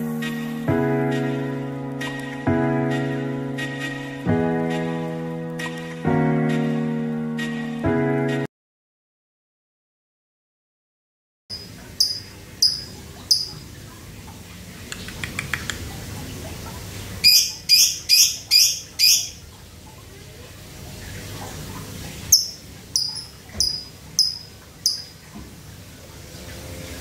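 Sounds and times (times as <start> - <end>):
bird high ticking notes: 11.5 - 13.8, 17.2 - 19.4, 22.3 - 25.3.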